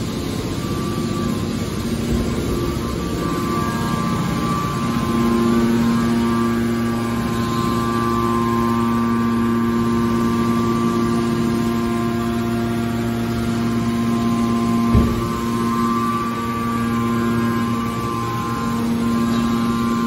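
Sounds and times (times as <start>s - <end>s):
hydraulic pump hum and whine: 0.0s - 20.0s
short low thump: 14.9s - 15.4s.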